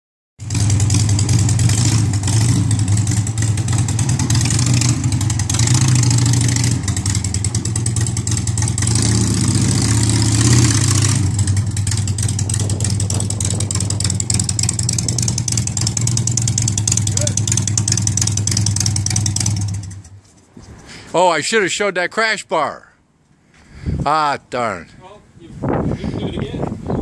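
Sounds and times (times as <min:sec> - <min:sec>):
motorcycle engine running: 0:00.4 - 0:20.3.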